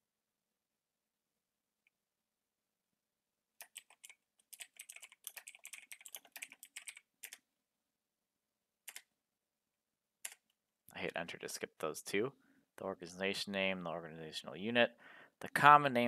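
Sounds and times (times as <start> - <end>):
faint keyboard typing: 3.6 - 7.5, 8.8 - 9.1, 10.2 - 10.6.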